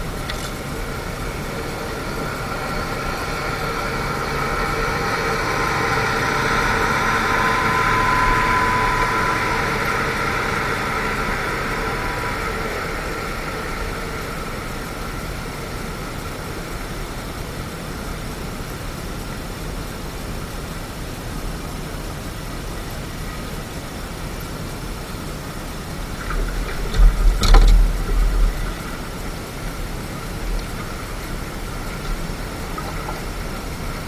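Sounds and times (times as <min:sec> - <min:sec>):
low rumble: 0:00.0 - 0:16.2, 0:25.8 - 0:34.0
boat motor humming: 0:00.0 - 0:34.0
steady low noise: 0:00.0 - 0:34.0.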